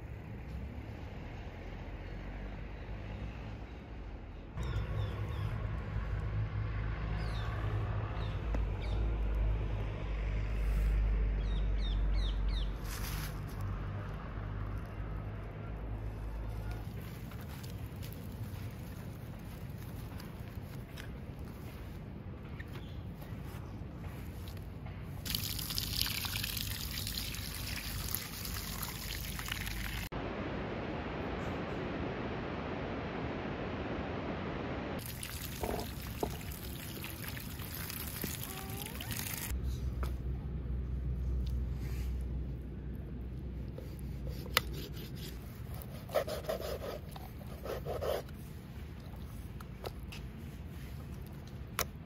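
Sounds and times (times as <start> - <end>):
tap water splashing over hands: 35.0 - 39.4
knife sawing through chicken: 43.8 - 48.3.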